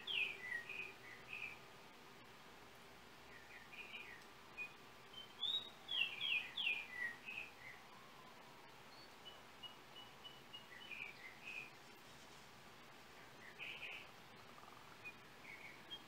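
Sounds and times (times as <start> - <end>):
bird singing whistled notes: 0.0 - 1.6, 3.3 - 11.8, 13.4 - 16.0
faint steady hiss: 0.0 - 16.0.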